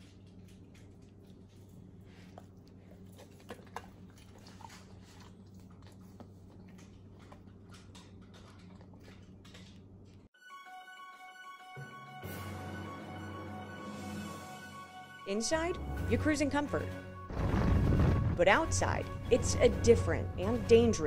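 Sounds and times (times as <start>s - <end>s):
dog licking and smacking lips: 0.0s - 10.3s
music: 10.4s - 21.0s.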